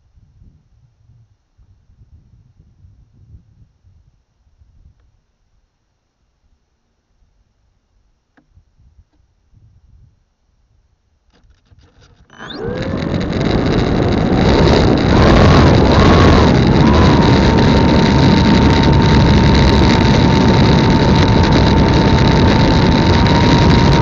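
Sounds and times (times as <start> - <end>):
wind rushing over microphone: 0.0 - 5.0, 12.4 - 24.0
electric motor and propeller whine: 11.8 - 24.0.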